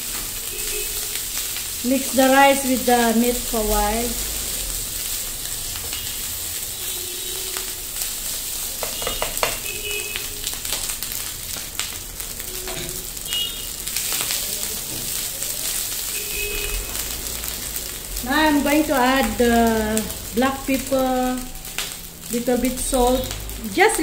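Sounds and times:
rice sizzling in a frying pan: 0.0s - 24.0s
spatula scraping and knocking pan: 8.8s - 9.7s.

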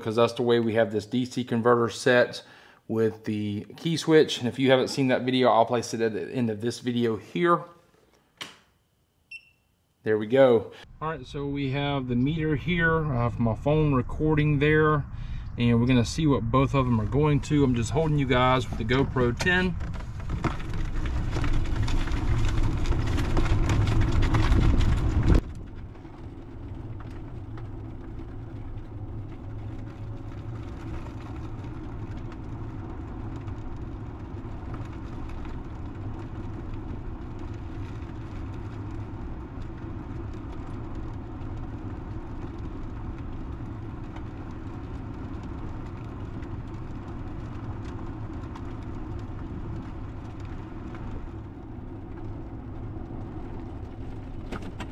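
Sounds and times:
electric golf cart rolling: 16.1s - 54.9s.

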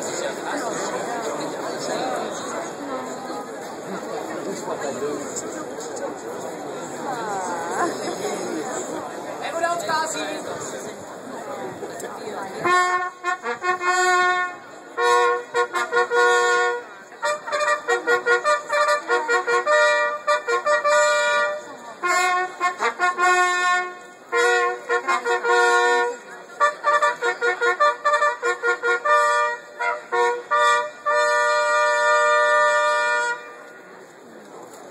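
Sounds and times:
trumpets playing a fanfare: 12.6s - 33.7s.

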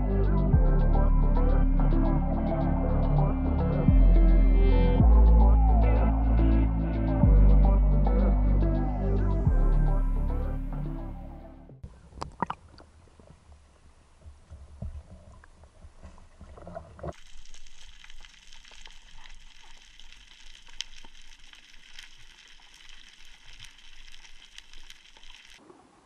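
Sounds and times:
fine crackling clicks underwater: 12.1s - 13.6s, 14.2s - 25.7s.

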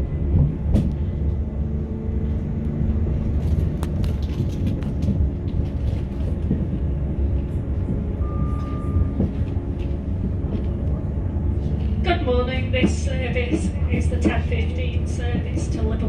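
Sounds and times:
train rumble inside carriage: 0.0s - 16.0s
sharp clicks and clacks: 3.4s - 8.0s.

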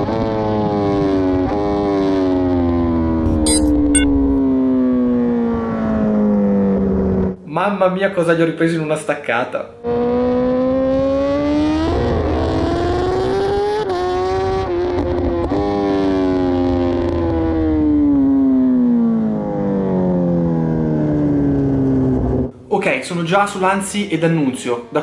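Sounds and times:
motorcycle engine revving: 9.8s - 22.5s.

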